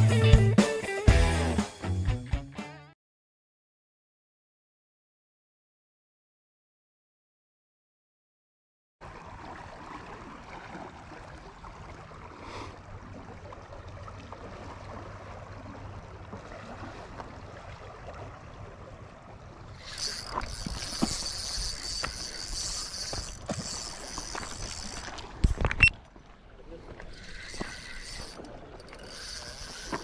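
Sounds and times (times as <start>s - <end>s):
outdoor background noise: 9.0s - 30.0s.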